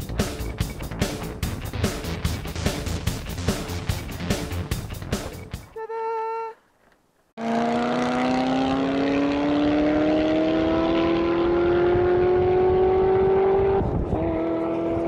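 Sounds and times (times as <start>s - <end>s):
car engine accelerating: 7.4s - 15.0s.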